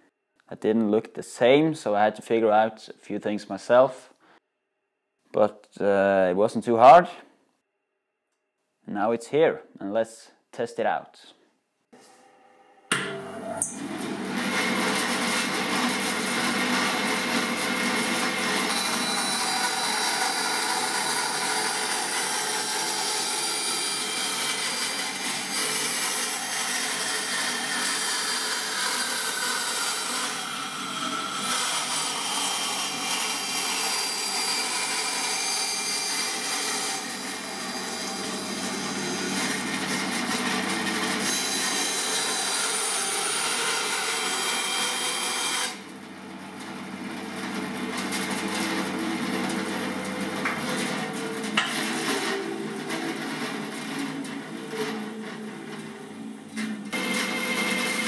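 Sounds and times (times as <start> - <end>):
bandsaw motor running: 13.0 - 56.0, 56.9 - 58.0
bandsaw blade rasping through wood: 13.7 - 55.4, 56.9 - 58.0.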